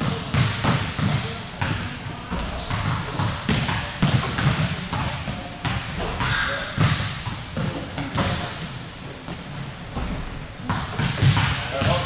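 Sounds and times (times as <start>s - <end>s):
basketball bouncing on hardwood floor: 0.0s - 8.4s, 10.0s - 12.0s.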